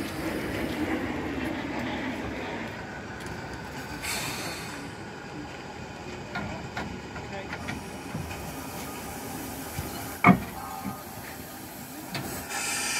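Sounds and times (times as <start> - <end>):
steam locomotive moving slowly: 0.0 - 12.9
steam hissing: 3.8 - 5.0, 7.6 - 12.9.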